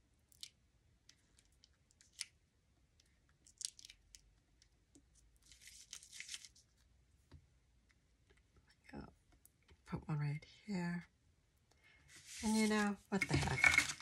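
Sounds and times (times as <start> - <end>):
papery rustle: 5.5 - 6.6, 12.1 - 14.0.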